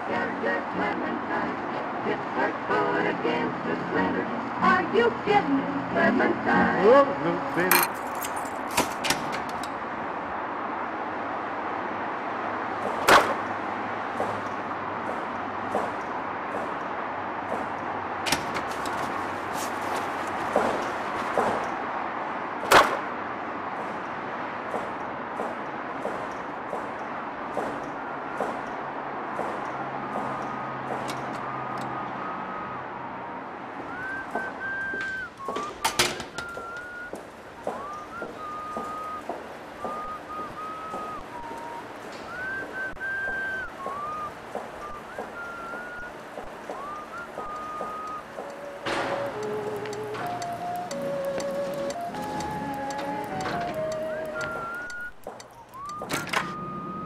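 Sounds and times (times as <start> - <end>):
thin whistling tone: 31.4 - 57.0
steady background hiss: 33.4 - 57.0
sharp clicks: 34.2 - 56.6
light clicks: 46.4 - 56.6
car door shutting: 46.7 - 55.1, 55.9 - 56.9.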